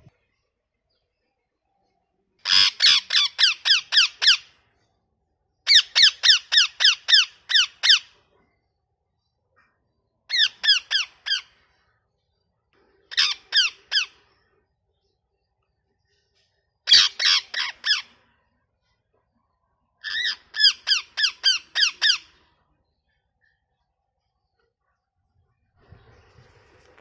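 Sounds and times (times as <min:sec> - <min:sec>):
parakeet squawking: 0:02.4 - 0:04.5, 0:05.7 - 0:08.1, 0:10.3 - 0:11.6, 0:13.1 - 0:14.2, 0:16.9 - 0:18.1, 0:20.0 - 0:22.4.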